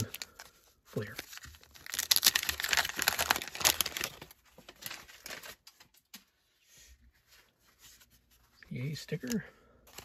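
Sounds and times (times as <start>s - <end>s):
paper wrapper tearing and crinkling: 0.0s - 5.9s.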